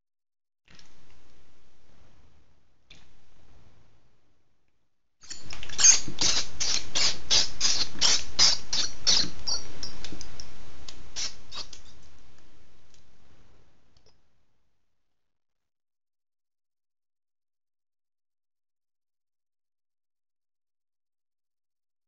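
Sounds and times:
mouse squeaking: 5.2s - 10.0s, 11.2s - 12.0s.

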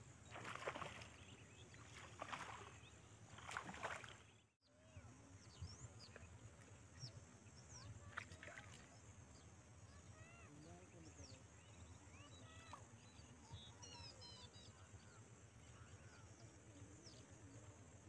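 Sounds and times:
faint water splashes: 0.0s - 13.8s
faint bird chirps: 0.2s - 18.0s.

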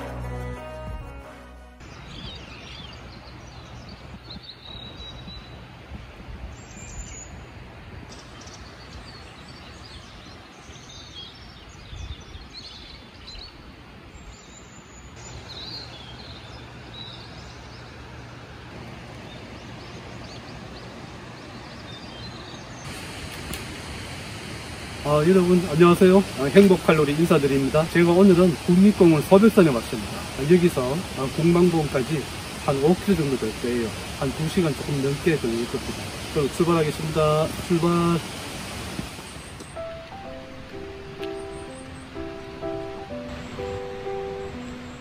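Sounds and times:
small birds chirping: 1.8s - 5.8s, 6.4s - 23.2s, 25.0s - 45.0s
steady rushing noise: 22.8s - 45.0s.

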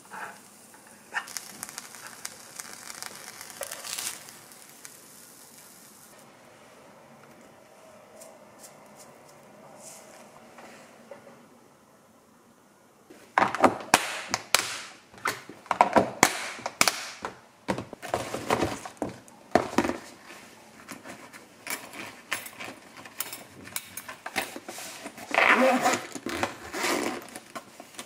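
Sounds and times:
zipper closing: 25.2s - 27.5s.

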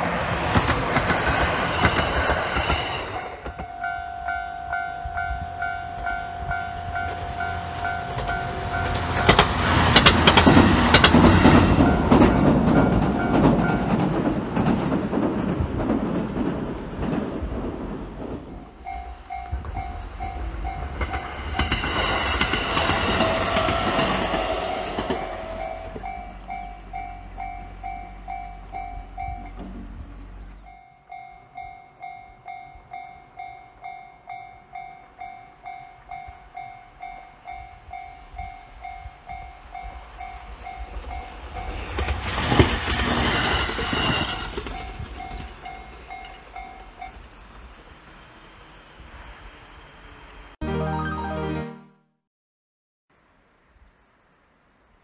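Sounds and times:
electric train passing: 0.0s - 51.2s
level-crossing warning bell: 3.4s - 9.4s, 11.7s - 14.0s, 18.8s - 29.6s, 30.6s - 41.8s, 44.6s - 47.2s.

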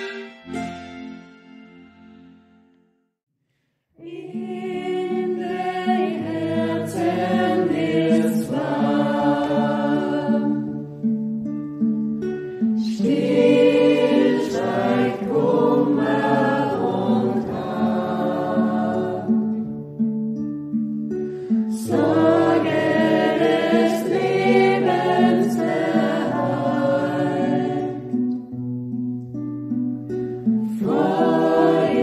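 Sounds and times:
choir singing: 4.0s - 10.9s, 12.8s - 19.7s, 21.7s - 28.4s, 30.6s - 32.0s.

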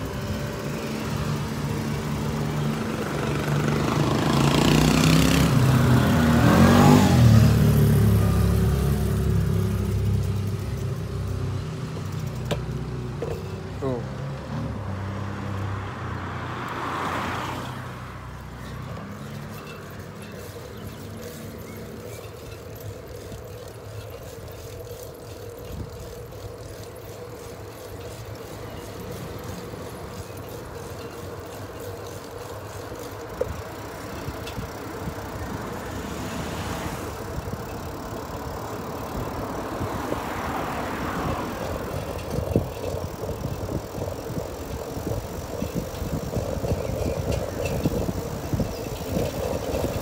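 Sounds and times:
bicycle rolling on asphalt: 0.0s - 50.0s.

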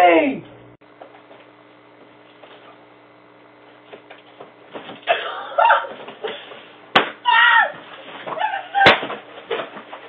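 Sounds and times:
microphone hiss and hum: 0.0s - 10.0s
items being handled taps and rustles: 9.0s - 10.0s.

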